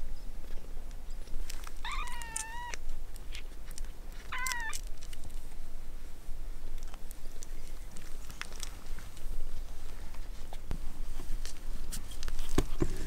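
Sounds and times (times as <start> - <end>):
newborn kitten mewing: 1.8 - 2.8, 4.3 - 4.8.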